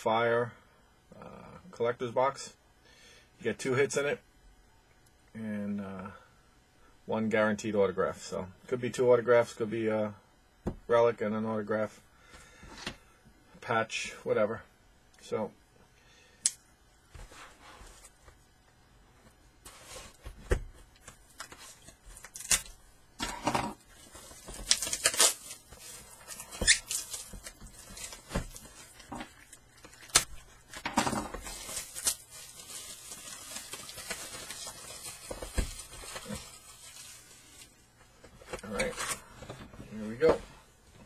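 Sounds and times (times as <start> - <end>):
foil packs being handled: 21.0 - 22.8, 23.8 - 37.8
plastic wrap crinkling and tearing: 21.1 - 22.8, 23.8 - 37.7.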